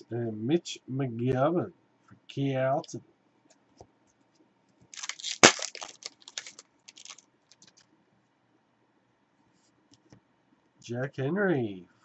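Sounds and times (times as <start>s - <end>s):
foil crinkling: 5.0s - 7.8s
foil wrapper tearing: 5.0s - 7.8s.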